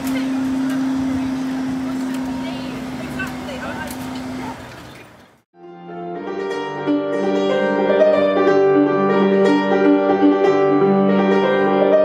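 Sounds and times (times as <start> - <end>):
instrumental background music: 5.6 - 12.0.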